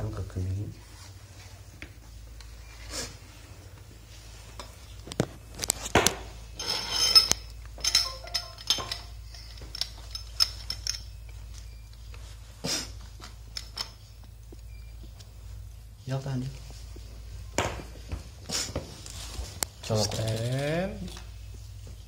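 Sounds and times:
pipe wrench clinking on metal pipe: 6.6 - 11.2.

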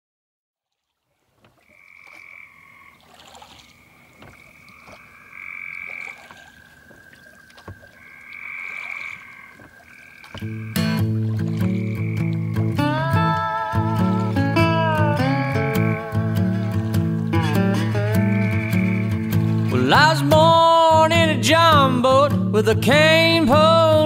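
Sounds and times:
frogs trilling: 1.4 - 19.8.

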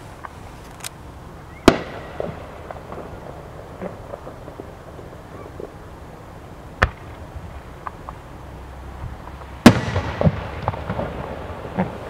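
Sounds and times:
firework crackles: 0.0 - 12.0
sharp firework crack: 1.5 - 8.3, 9.2 - 12.0
firework boom with echoes: 9.6 - 12.0.

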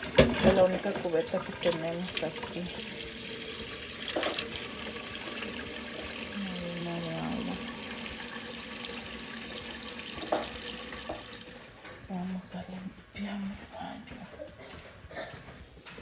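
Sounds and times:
water running into metal bucket: 0.0 - 12.2.

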